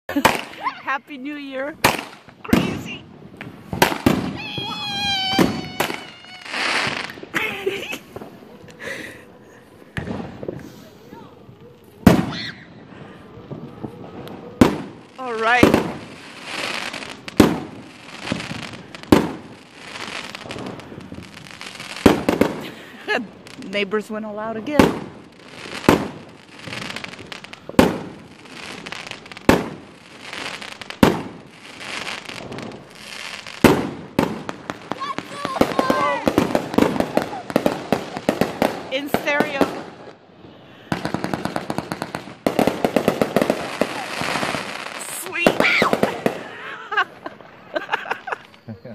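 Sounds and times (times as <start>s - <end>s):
crackling hiss: 0.1s - 24.2s, 24.9s - 48.9s
firework bangs: 0.1s - 48.7s
firework whistle: 4.2s - 7.3s.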